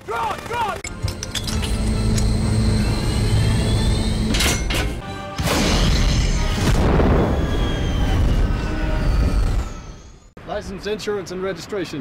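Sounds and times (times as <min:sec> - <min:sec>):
dramatic film score: 0:00.0 - 0:10.4
bomb explosion boom: 0:05.7 - 0:08.7.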